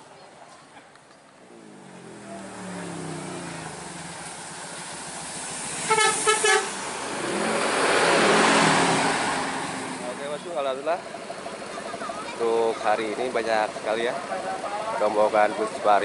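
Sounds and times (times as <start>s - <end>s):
bus engine: 0.0s - 16.0s
road noise: 0.0s - 16.0s
multi-tone horn blasts: 5.8s - 6.8s.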